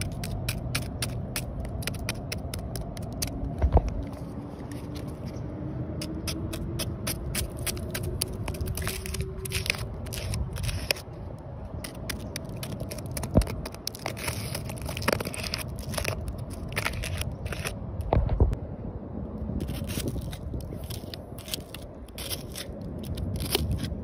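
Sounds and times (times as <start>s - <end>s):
snail eggs crackling when crushed: 6.2s - 11.0s, 11.8s - 17.8s, 19.6s - 23.9s.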